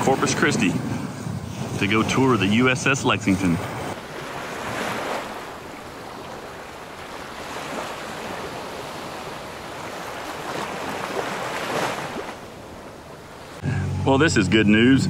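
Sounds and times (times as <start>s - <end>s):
steady rushing noise: 0.0s - 11.4s.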